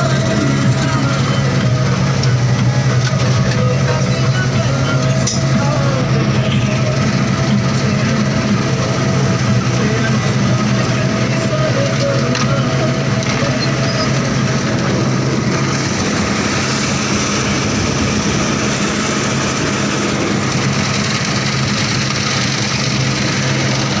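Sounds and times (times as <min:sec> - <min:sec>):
engine drone: 0:00.0 - 0:24.0
threshing machinery noise: 0:00.0 - 0:24.0.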